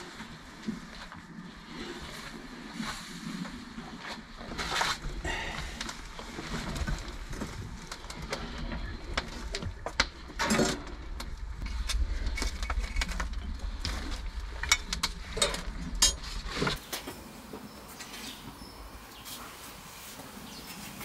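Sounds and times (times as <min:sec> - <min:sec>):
low steady rumble: 0:05.0 - 0:16.8
firewood knocking and clinking: 0:06.7 - 0:17.2.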